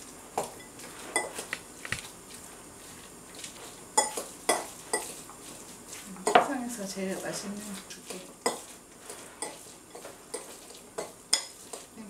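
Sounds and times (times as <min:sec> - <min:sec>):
fork scraping ceramic bowl: 0:08.1 - 0:11.9.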